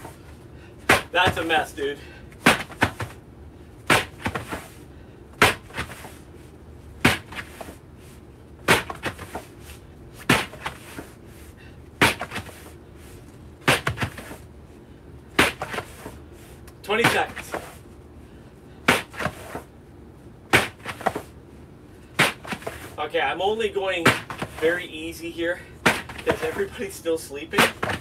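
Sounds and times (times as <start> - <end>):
ropes slapping as they settle: 0.8 - 1.6, 2.3 - 3.2, 3.8 - 4.8, 5.4 - 6.2, 7.0 - 7.8, 8.6 - 9.6, 10.2 - 11.2, 12.0 - 12.7, 13.6 - 14.4, 15.3 - 17.8, 18.8 - 19.7, 20.5 - 21.3, 22.2 - 23.0, 24.0 - 24.6, 25.8 - 26.9, 27.6 - 28.0
battle ropes smacking floor: 0.9 - 1.6, 2.4 - 3.2, 3.9 - 4.7, 5.4 - 6.2, 7.0 - 7.8, 8.7 - 9.5, 10.2 - 11.1, 12.0 - 12.7, 13.6 - 14.4, 15.4 - 16.1, 18.9 - 19.6, 20.5 - 21.3, 22.2 - 23.0, 24.0 - 24.6, 25.8 - 26.8, 27.6 - 28.0.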